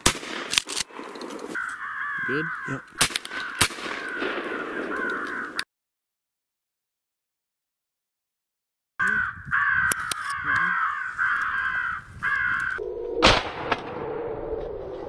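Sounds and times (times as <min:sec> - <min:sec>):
crows cawing: 0:01.5 - 0:05.6, 0:09.0 - 0:12.8
shotgun shot: 0:13.2 - 0:14.0.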